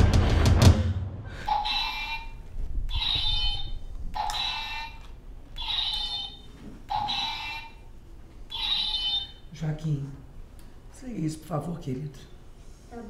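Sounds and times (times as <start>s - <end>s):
toy sword buzzing alarm tone: 1.5s - 7.8s, 8.5s - 9.4s.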